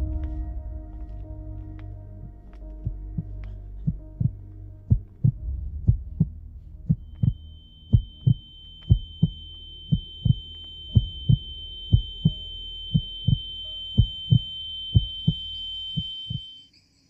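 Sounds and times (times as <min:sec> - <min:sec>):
heartbeat double thump: 0:02.2 - 0:16.4
high-pitched ringing tone: 0:06.9 - 0:17.0.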